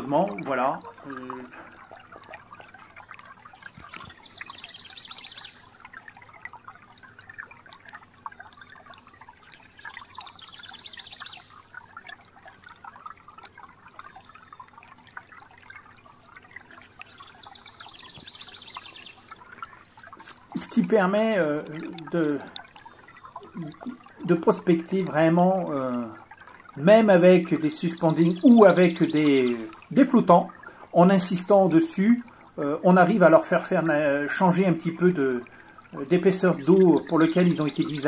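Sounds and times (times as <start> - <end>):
crackling water hiss: 0.0 - 38.0
rapid high ticking: 0.0 - 38.0.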